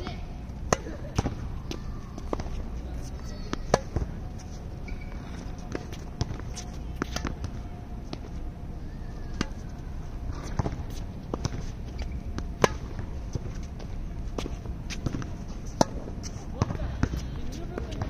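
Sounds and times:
tennis ball bouncing: 0:00.0 - 0:04.1, 0:04.9 - 0:08.4, 0:10.3 - 0:13.7, 0:14.4 - 0:18.0
steady low rumble: 0:00.0 - 0:18.0
rackets striking tennis ball: 0:00.7 - 0:04.1, 0:10.3 - 0:13.6, 0:14.4 - 0:18.0.

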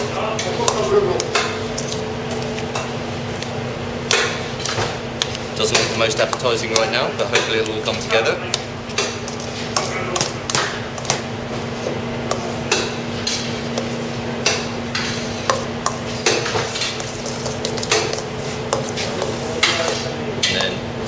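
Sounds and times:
steady low hum: 0:00.0 - 0:21.0
spoon scraping metal bowl: 0:15.0 - 0:20.8.

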